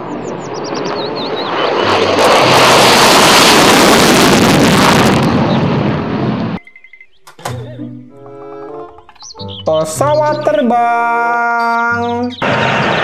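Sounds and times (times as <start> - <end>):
fighter jet roar on takeoff: 0.0 - 6.6, 12.4 - 13.0.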